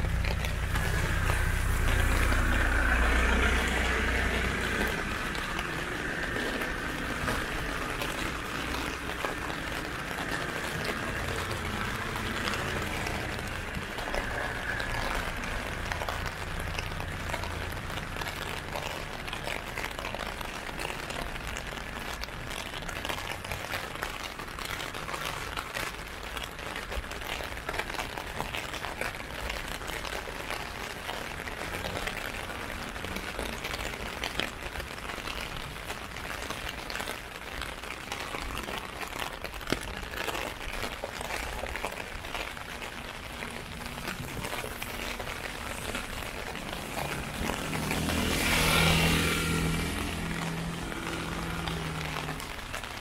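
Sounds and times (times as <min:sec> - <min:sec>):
vehicle approaching: 0:00.0 - 0:24.0, 0:41.5 - 0:53.0
rain pattering on an umbrella: 0:00.0 - 0:53.0.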